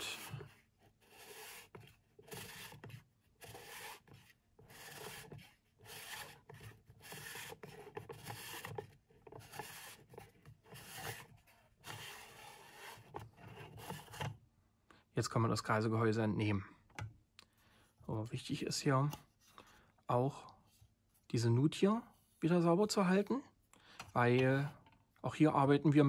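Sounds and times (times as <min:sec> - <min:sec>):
plastic threads scraping: 0:00.0 - 0:14.3.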